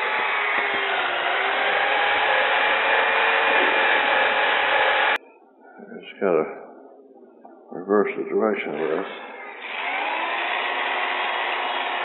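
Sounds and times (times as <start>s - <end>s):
electric drill motor whine: 0.0s - 5.2s, 9.0s - 12.0s.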